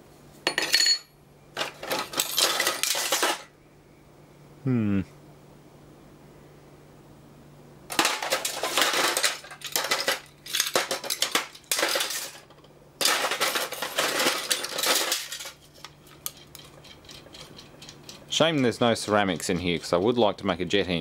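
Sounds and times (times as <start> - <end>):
plastic parts rattling on metal tray: 1.6 - 3.5, 7.9 - 20.7.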